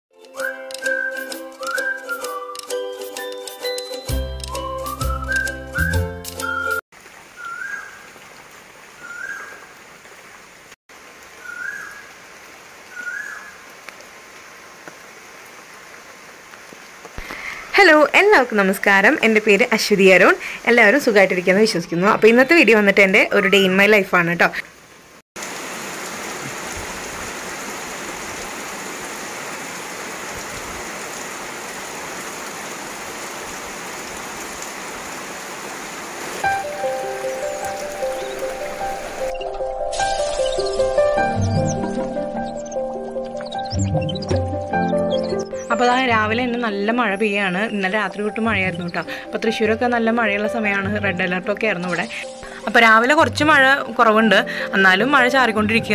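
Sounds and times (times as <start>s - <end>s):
music: 0.1s - 6.8s, 36.4s - 55.9s
bird whistling short rising note: 4.6s - 6.8s
steady rain: 5.8s - 43.4s, 45.8s - 55.9s.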